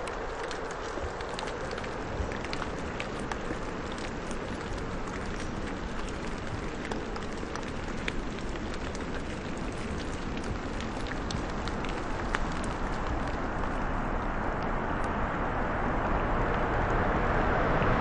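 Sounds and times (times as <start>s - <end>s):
raindrop ticks: 0.0s - 15.2s
steady rain hiss: 0.0s - 18.0s.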